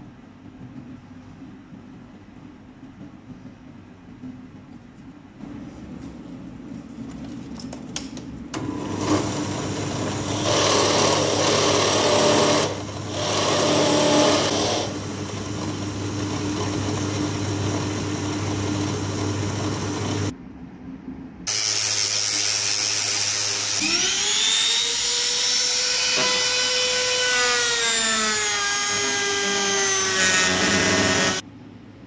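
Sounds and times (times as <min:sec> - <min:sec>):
power tool motor running: 0:08.6 - 0:20.3, 0:21.5 - 0:31.4.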